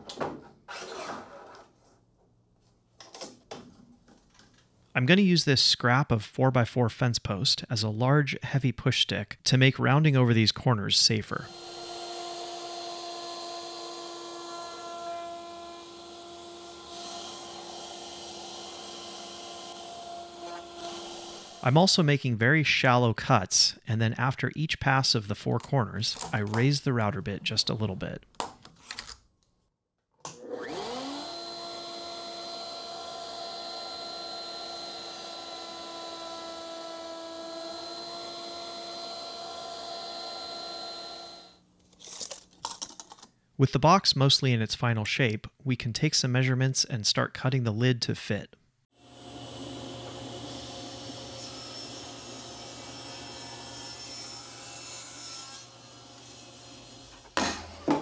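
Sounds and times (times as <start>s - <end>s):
router running with high hum: 11.5s - 21.6s, 30.4s - 41.6s, 49.0s - 54.6s
router bit cutting wood: 11.5s - 21.8s, 30.3s - 41.6s, 49.0s - 58.0s.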